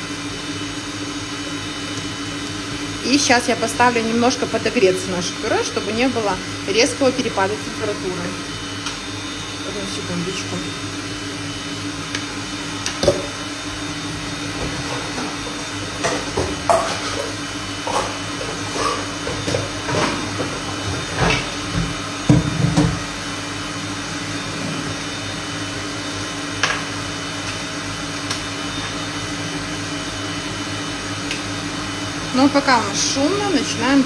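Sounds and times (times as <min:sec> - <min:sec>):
kitchen appliance humming: 0:00.0 - 0:34.0
kitchenware knocking and clattering: 0:16.0 - 0:17.3.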